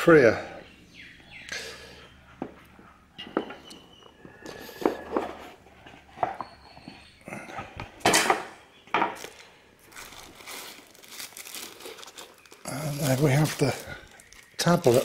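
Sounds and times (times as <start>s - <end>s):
plastic sleeve crinkling: 9.2s - 15.0s.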